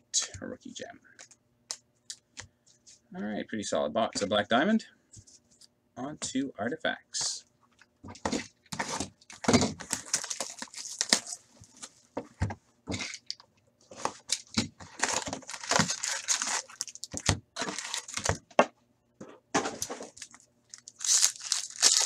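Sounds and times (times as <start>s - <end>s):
cardboard and wrappers crinkling: 8.7s - 12.1s, 13.9s - 18.4s, 19.8s - 22.0s.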